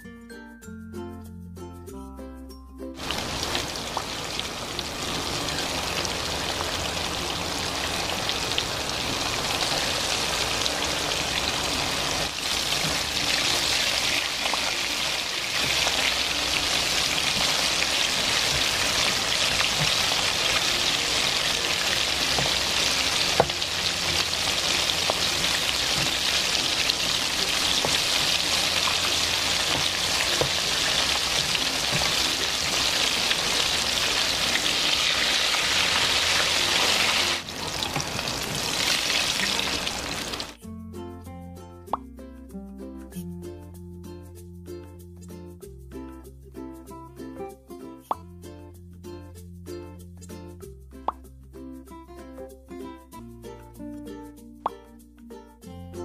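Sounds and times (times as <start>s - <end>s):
oil sizzling and crackling: 3.0s - 40.6s.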